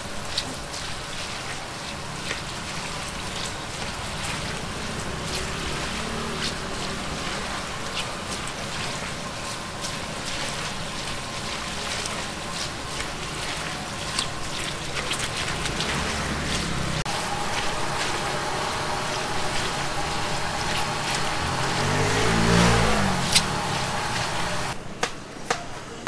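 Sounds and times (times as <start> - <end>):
food deep-frying in oil: 0.0 - 24.8.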